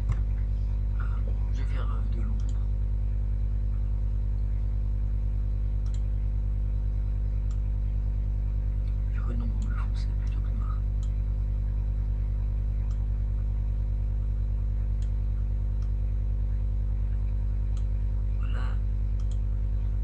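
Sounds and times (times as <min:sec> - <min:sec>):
electrical mains hum: 0:00.0 - 0:20.0
faint clicks: 0:02.3 - 0:02.6, 0:05.8 - 0:06.2, 0:17.1 - 0:18.0, 0:19.1 - 0:19.5.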